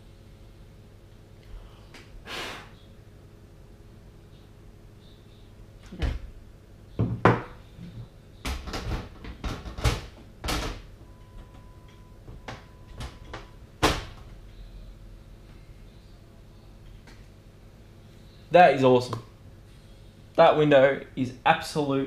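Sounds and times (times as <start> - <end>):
computer case panel knocks and clicks: 8.4 - 10.9.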